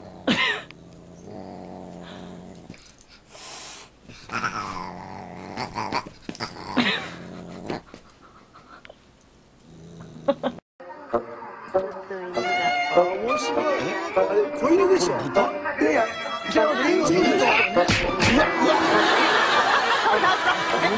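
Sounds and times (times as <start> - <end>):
dog growling: 0.0 - 3.0, 4.1 - 8.1, 9.6 - 10.6.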